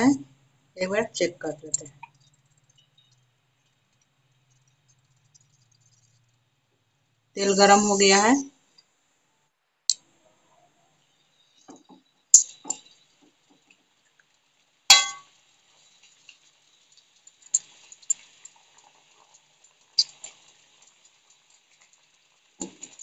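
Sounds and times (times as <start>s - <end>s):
hot oil sizzling and crackling: 0.0s - 8.9s, 11.0s - 23.0s
metallic clangs against pan: 14.9s - 15.2s.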